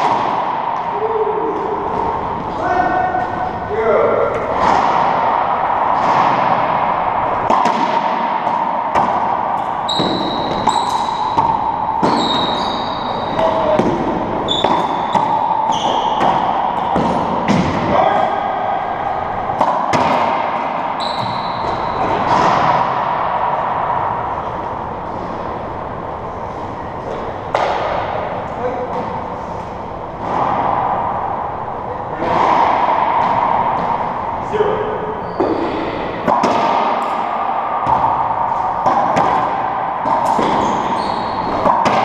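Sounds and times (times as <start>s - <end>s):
racquetball hits echoing: 0.0s - 42.0s
sneakers squeaking on hardwood: 9.9s - 13.7s, 14.4s - 17.6s, 21.0s - 22.3s, 35.2s - 35.9s, 40.4s - 41.6s.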